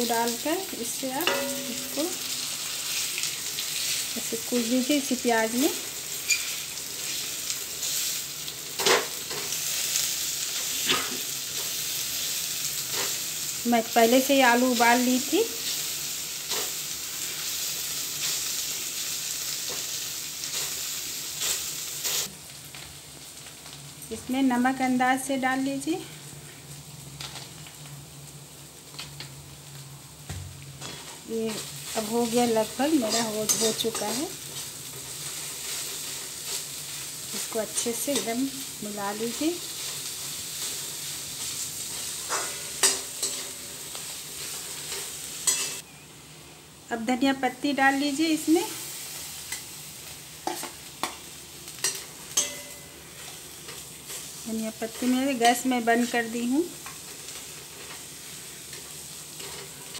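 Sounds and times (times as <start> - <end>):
potato sizzling in hot oil: 0.0 - 59.9
metal spoon scraping pan: 33.0 - 34.2.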